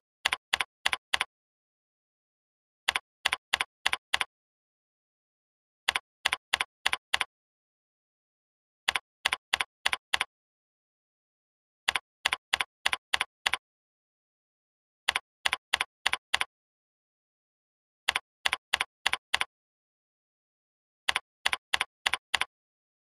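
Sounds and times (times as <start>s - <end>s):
keyboard keystrokes clicking: 0.2s - 1.3s, 2.9s - 4.3s, 5.9s - 7.3s, 8.9s - 10.3s, 11.9s - 13.6s, 15.1s - 16.5s, 18.1s - 19.5s, 21.1s - 22.5s.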